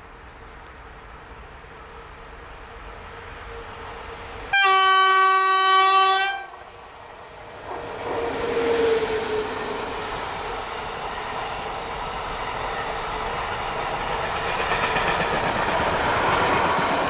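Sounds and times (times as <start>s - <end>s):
train rumbling past: 0.0s - 17.0s
locomotive horn blast: 4.5s - 6.6s.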